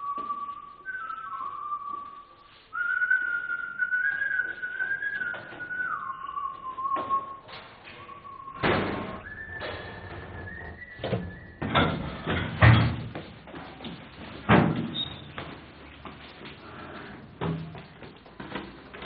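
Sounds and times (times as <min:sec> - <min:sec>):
person whistling a slow tune: 0:00.0 - 0:11.8
loud thud: 0:08.6 - 0:09.3.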